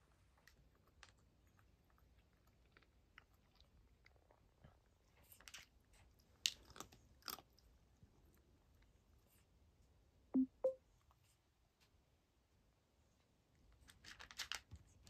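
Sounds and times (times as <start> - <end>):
cat crunching dry kibble: 0.3 - 8.9, 13.8 - 15.0.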